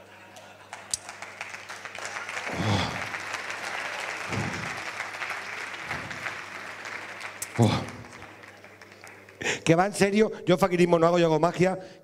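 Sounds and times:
audience applauding: 0.5 - 9.9.

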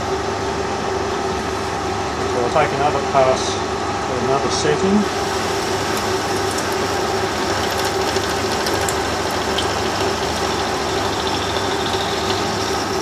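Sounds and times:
lathe running: 5.1 - 13.0.

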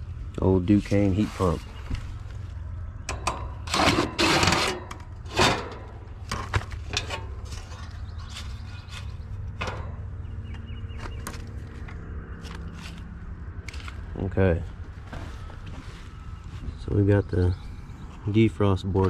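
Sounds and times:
sheet metal scraping and rattling: 3.1 - 10.5.

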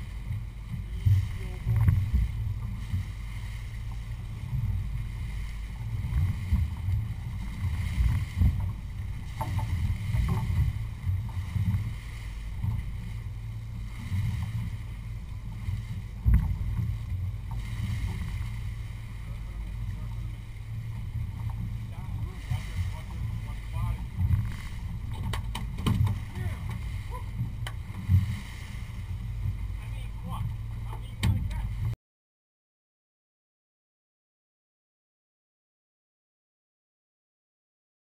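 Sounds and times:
wind buffeting microphone: 0.0 - 31.9
outboard motors rumbling: 0.0 - 32.0
hiss of boat wake: 28.0 - 29.2.

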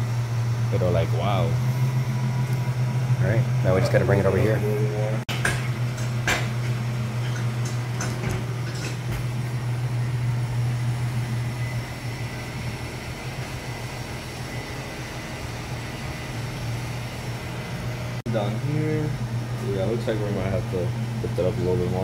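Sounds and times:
steady low hum: 0.0 - 22.0
engine hoist rolling on floor: 0.7 - 17.6
clanks and rattles: 5.3 - 9.6.

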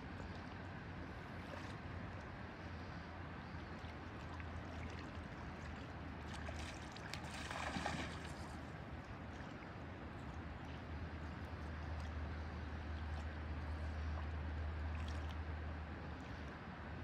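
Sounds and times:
river flowing over gravel: 6.2 - 9.0.

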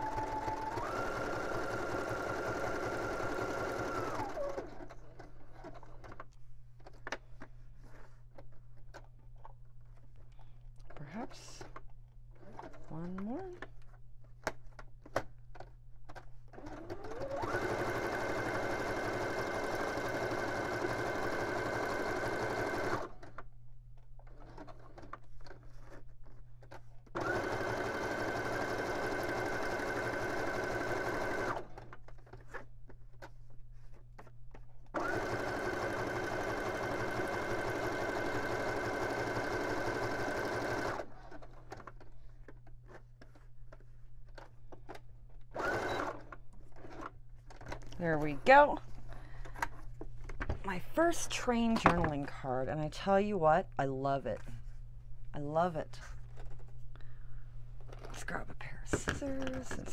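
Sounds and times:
sewing machine stitching: 0.0 - 6.2, 16.5 - 23.3, 27.2 - 32.4, 34.9 - 41.9, 45.5 - 47.1.

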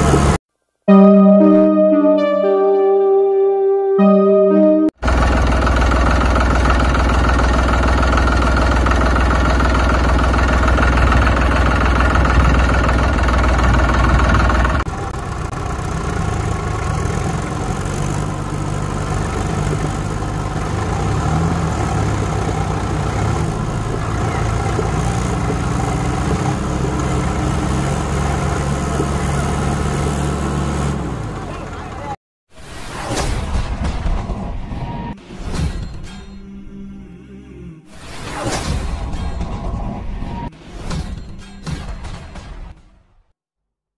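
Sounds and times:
vehicle engine idling: 5.0 - 32.2.

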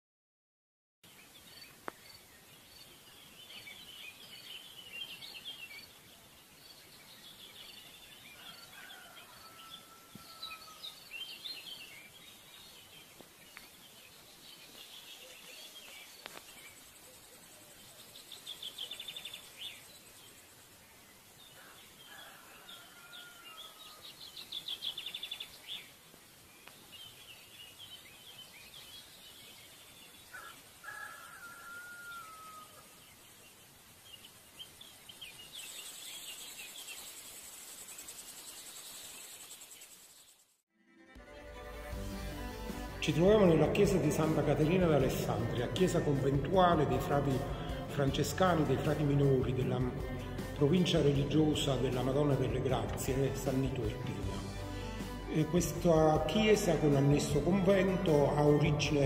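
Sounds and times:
faint steady hiss: 1.1 - 8.5, 10.1 - 40.6
birds chirping and singing: 1.2 - 40.0, 42.1 - 59.0.

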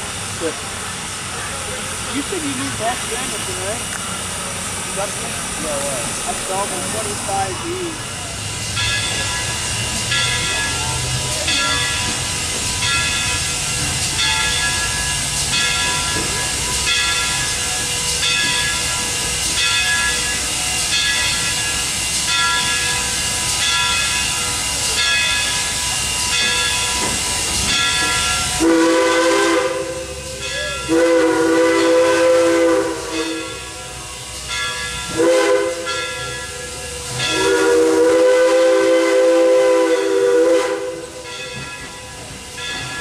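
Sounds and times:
steam hiss: 0.0 - 43.0
locomotive bell ringing: 1.5 - 38.2, 40.8 - 43.0
steam whistle chord: 28.6 - 33.6, 35.1 - 36.0, 37.1 - 41.1.

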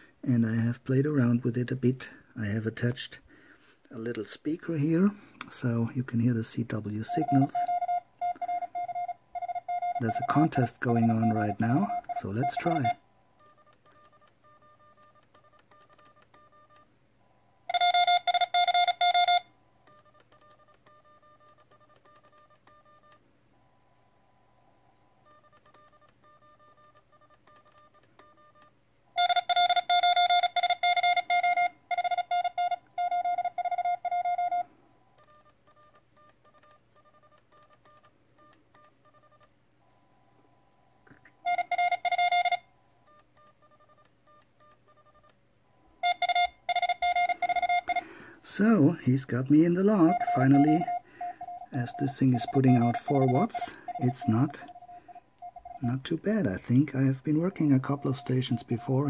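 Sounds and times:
faint high morse signals: 5.7 - 15.6, 17.6 - 19.5, 25.3 - 35.9, 41.4 - 59.0
morse code sidetone: 6.8 - 15.6, 17.7 - 23.2, 25.3 - 36.3, 41.4 - 45.3, 46.0 - 59.0.

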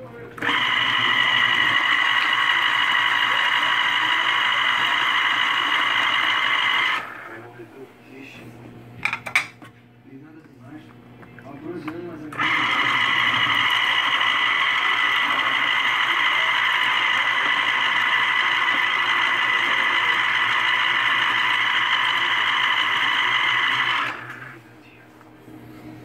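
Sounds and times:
electric citrus juicer whirring: 0.1 - 7.6, 12.3 - 24.7.

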